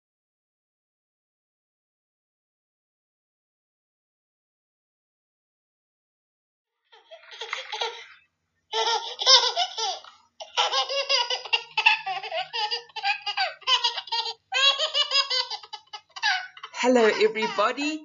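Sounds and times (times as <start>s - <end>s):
baby laughing and giggling: 6.9s - 17.9s.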